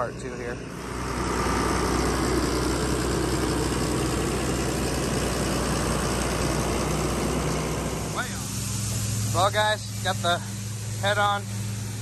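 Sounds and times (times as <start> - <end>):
tractor diesel engine idling: 0.0 - 12.0.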